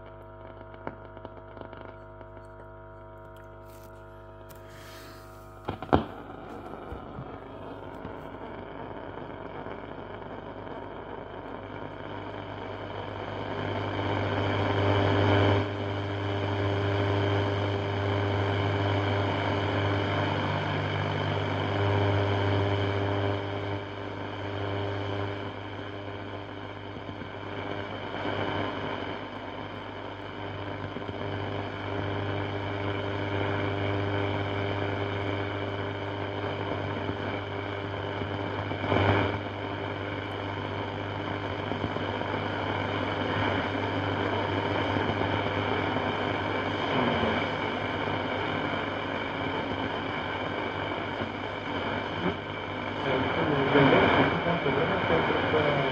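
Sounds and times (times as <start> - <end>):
radio static: 0.0 - 55.9
low hum: 16.9 - 27.7.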